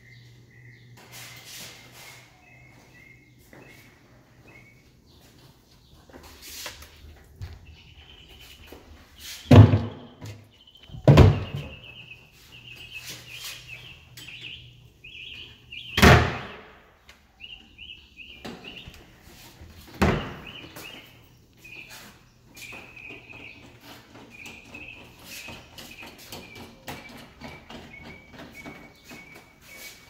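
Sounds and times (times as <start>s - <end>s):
bird chirping: 0.0s - 30.0s
doors shutting with thuds: 9.5s - 12.0s, 19.8s - 21.0s.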